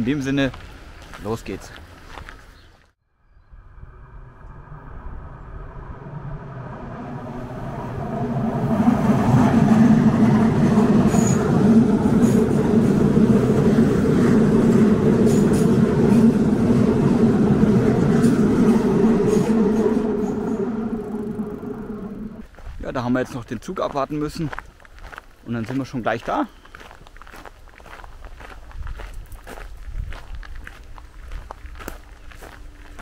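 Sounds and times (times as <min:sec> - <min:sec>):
electric train passing: 0:03.5 - 0:22.5.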